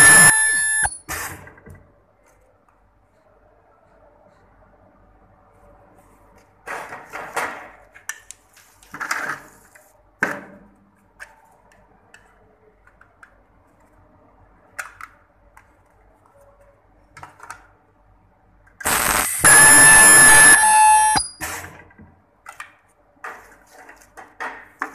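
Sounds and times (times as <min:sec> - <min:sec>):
ultrasonic welder firing: 0:18.9 - 0:21.5.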